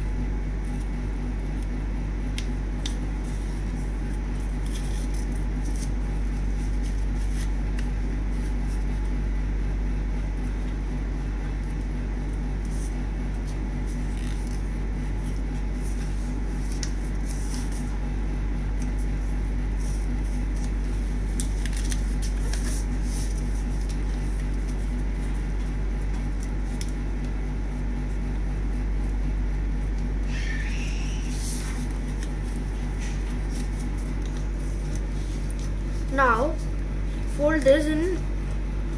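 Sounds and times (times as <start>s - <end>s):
low background hum: 0.0s - 38.9s
paper rustling and creasing: 2.4s - 9.1s, 12.6s - 29.2s, 30.2s - 38.0s.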